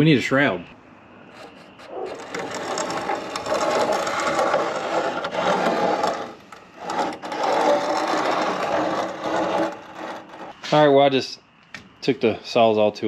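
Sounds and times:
reciprocating saw cutting sheet metal: 1.4s - 10.6s.

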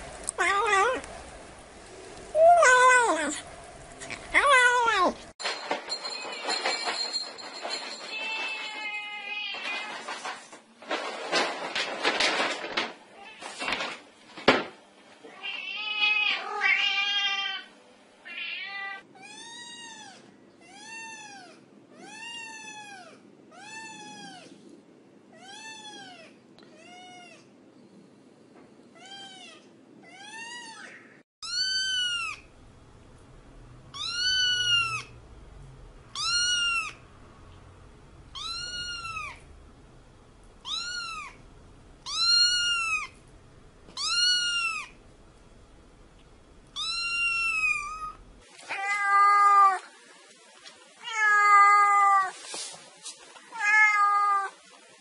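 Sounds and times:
cat meowing: 15.3s - 24.5s, 29.0s - 32.5s, 33.9s - 35.1s, 36.1s - 37.0s, 38.3s - 39.4s, 40.6s - 41.4s, 42.0s - 43.2s, 44.0s - 45.0s, 46.8s - 49.9s, 51.0s - 52.3s, 53.5s - 54.6s.

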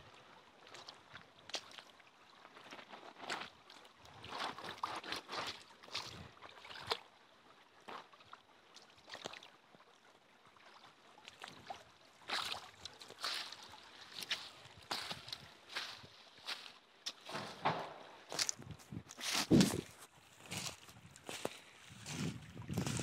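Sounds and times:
footsteps crunching dry leaves: 13.2s - 17.2s, 18.3s - 23.0s.

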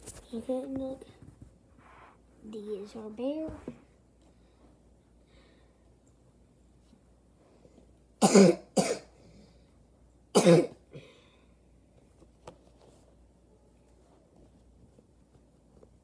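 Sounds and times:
person coughing: 8.2s - 9.2s, 10.3s - 11.2s.

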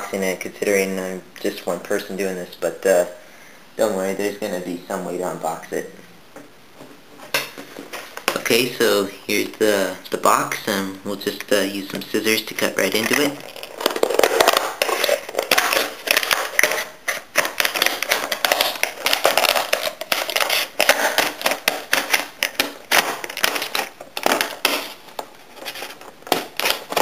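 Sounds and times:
plastic packaging crackling: 12.5s - 27.0s
scissors cutting plastic: 13.0s - 27.0s.

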